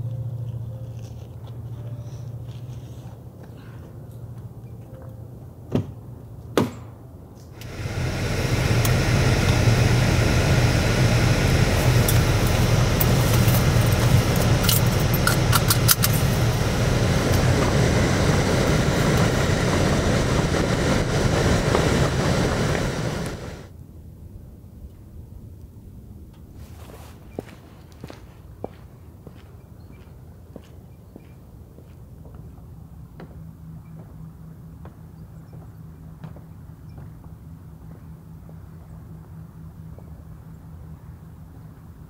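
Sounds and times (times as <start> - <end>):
car engine running: 7.6 - 23.7.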